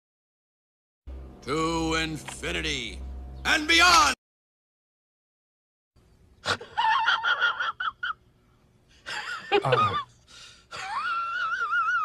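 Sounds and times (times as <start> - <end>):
man wheezing laugh: 6.4 - 8.2, 9.0 - 10.1, 10.7 - 12.0.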